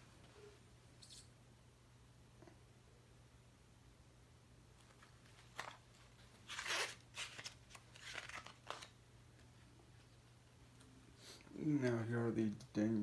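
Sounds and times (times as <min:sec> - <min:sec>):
paper pages flipping: 0:04.8 - 0:09.0.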